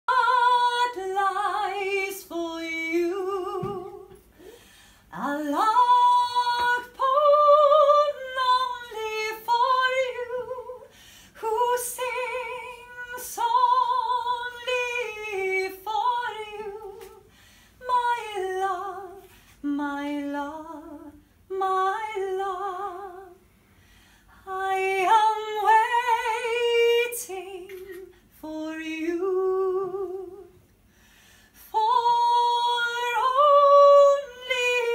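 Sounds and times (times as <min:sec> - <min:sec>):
woman singing unaccompanied: 0:00.1 - 0:23.4, 0:24.4 - 0:30.6, 0:31.6 - 0:34.9.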